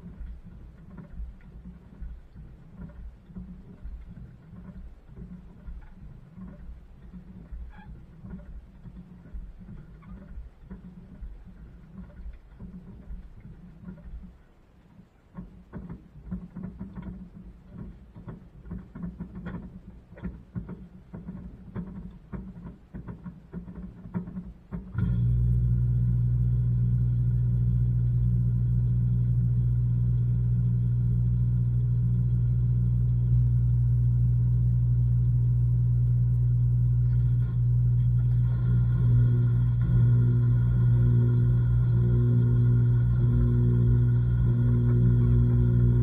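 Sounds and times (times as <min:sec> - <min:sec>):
washing machine motor hum: 0:00.0 - 0:46.0.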